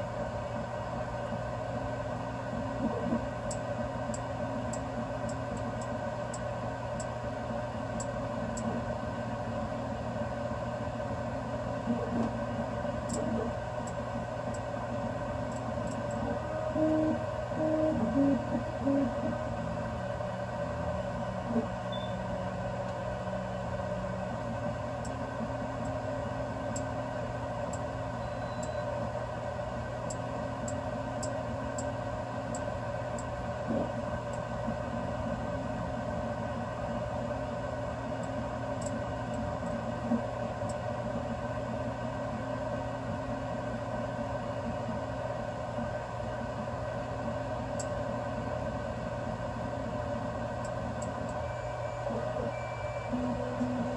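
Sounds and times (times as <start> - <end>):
cooling fans humming: 0.0 - 53.9
stepper motor tones: 15.9 - 27.0, 51.1 - 53.9.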